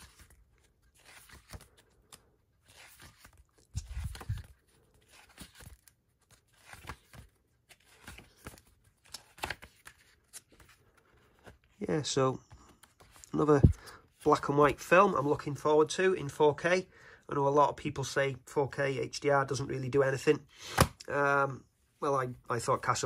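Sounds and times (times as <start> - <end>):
pages turning and rustling: 0.0 - 11.8, 12.5 - 15.4.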